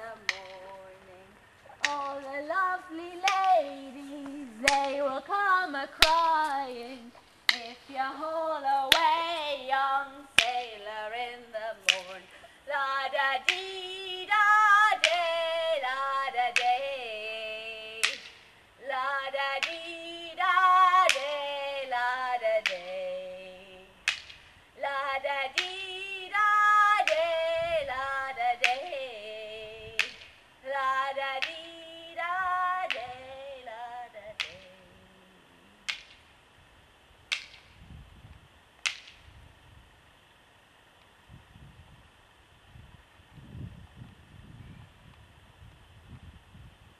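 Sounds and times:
woman singing with vibrato: 0.0 - 24.1, 24.7 - 36.0
sharp slaps: 0.2 - 0.8, 1.8 - 2.4, 3.2 - 5.2, 6.0 - 6.6, 7.5 - 8.0, 8.9 - 9.3, 10.1 - 10.9, 11.8 - 12.3, 13.4 - 13.7, 14.3 - 15.9, 16.5 - 16.9, 18.0 - 18.5, 19.6 - 20.0, 20.9 - 21.5, 22.6 - 23.0, 24.0 - 24.5, 25.5 - 27.4, 28.5 - 29.0, 29.9 - 30.4, 31.2 - 33.4, 34.3 - 34.8, 35.8 - 36.3, 37.3 - 37.8, 38.8 - 39.3.

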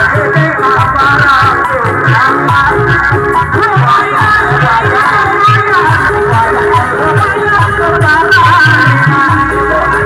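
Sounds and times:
music through horn loudspeakers: 0.0 - 10.0
repeating drum beat: 0.0 - 10.0.

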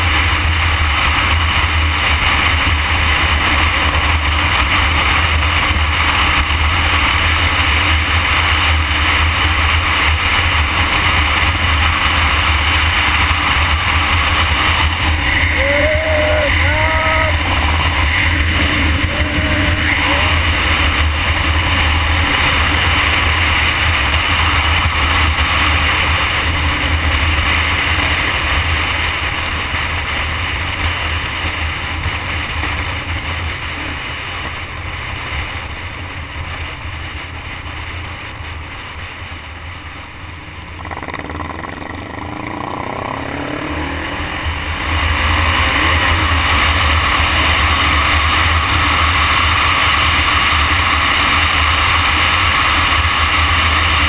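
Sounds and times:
wind rushing over microphone: 0.0 - 37.8
motorcycle engine running: 0.0 - 54.0.

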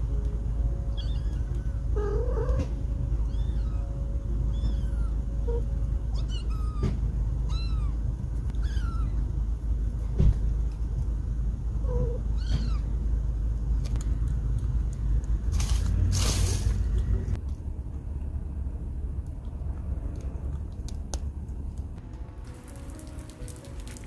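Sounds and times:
steady low rumble: 0.0 - 24.0
cat meowing: 0.9 - 9.3, 11.8 - 13.0.

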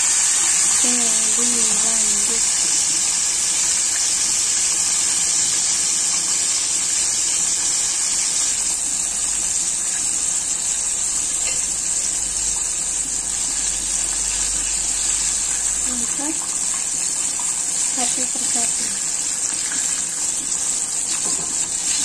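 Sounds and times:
chicken frying in hot oil: 0.0 - 22.0.

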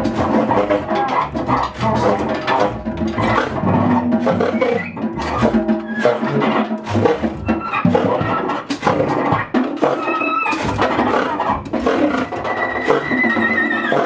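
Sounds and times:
double bass: 0.0 - 9.2
drum kit with cymbals: 0.0 - 14.0.

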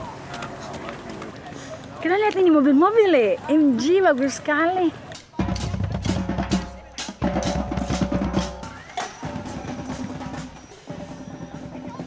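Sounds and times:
drum-driven music: 5.1 - 12.0.

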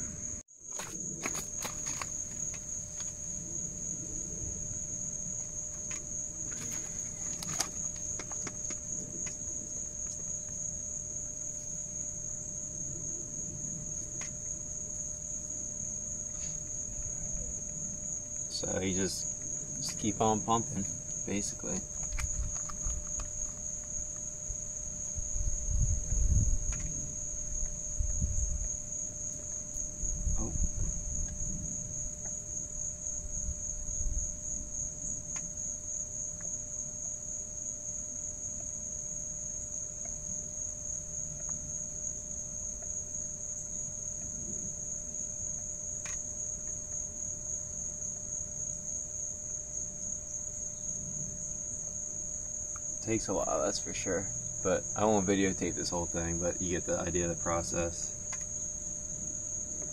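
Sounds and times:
crickets chirring: 0.0 - 59.9
low thumps and rumbles: 25.1 - 28.8.

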